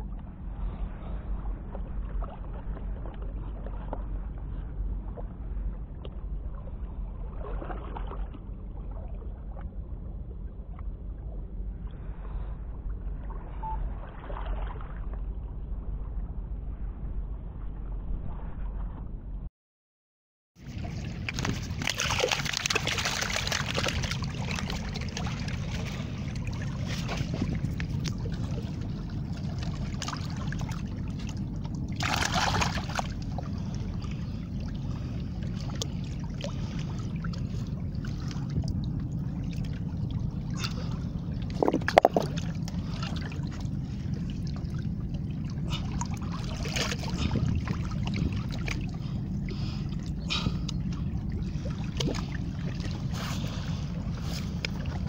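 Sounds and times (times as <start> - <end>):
steady low rumble: 0.0 - 19.5, 20.6 - 55.0
seawater sloshing among rocks: 20.6 - 55.0.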